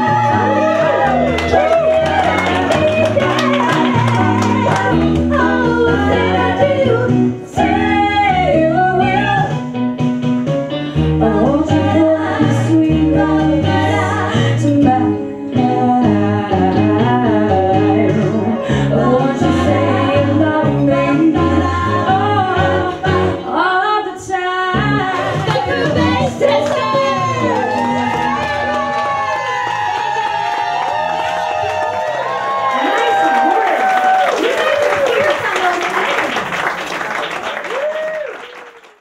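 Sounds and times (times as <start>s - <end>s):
female trio singing in harmony: 0.0s - 9.5s, 11.2s - 28.4s
instrumental backing with bass line: 0.0s - 32.6s.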